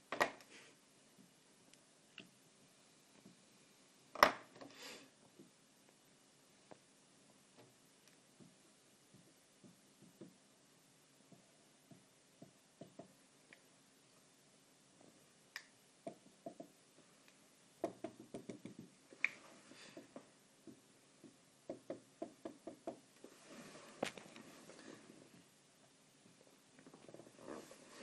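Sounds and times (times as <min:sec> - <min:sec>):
marker pen tapping on whiteboard: 0:11.3 - 0:13.2, 0:17.8 - 0:18.9.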